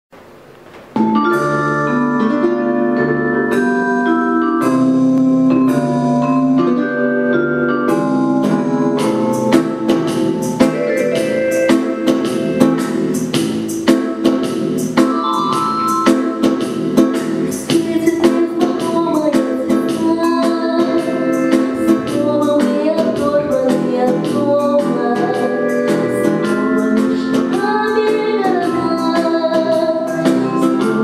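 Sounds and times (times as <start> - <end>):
chiming keyboard chords: 1.0 - 12.8
steady percussion beat: 7.9 - 20.3.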